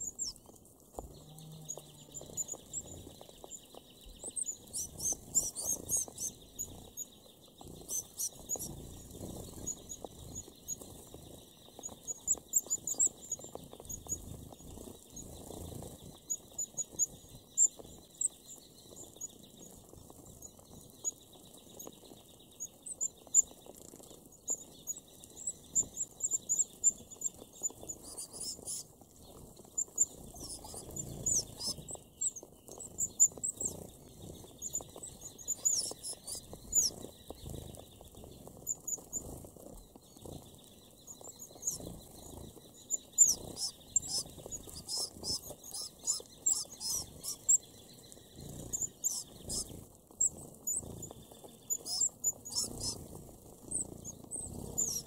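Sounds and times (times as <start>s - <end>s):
wing flutters: 0.0s - 21.9s, 22.6s - 55.0s
pecking and rustling in seed husks: 0.0s - 55.0s
finches high-pitched calls: 4.1s - 7.0s, 7.6s - 11.2s, 11.8s - 14.6s, 24.5s - 28.9s, 29.7s - 37.8s, 41.1s - 55.0s.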